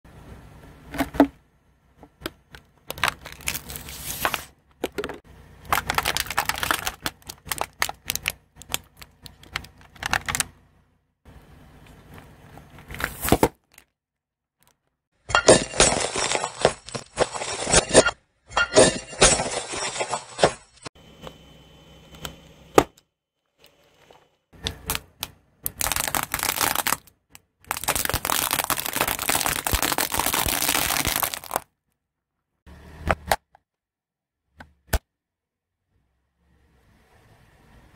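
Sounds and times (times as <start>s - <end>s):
objects crunching under car tyre: 2.4s - 10.6s, 15.4s - 18.1s, 23.7s - 31.7s.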